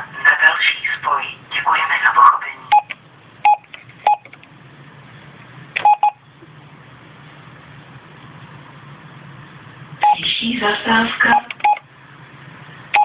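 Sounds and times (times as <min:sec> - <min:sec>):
steady low hum: 0:00.0 - 0:13.0
short keypad beeps: 0:02.7 - 0:04.3, 0:05.8 - 0:06.2, 0:10.0 - 0:10.2, 0:11.3 - 0:11.8.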